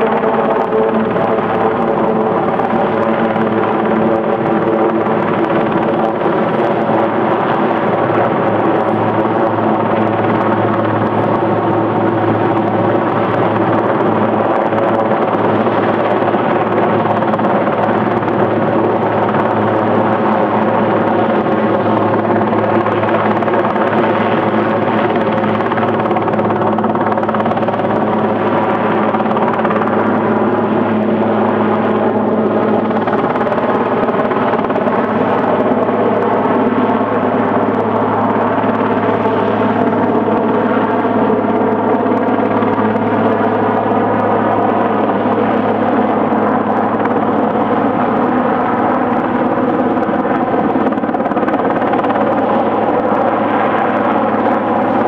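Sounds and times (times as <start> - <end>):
helicopter flying overhead: 0.0 - 55.0.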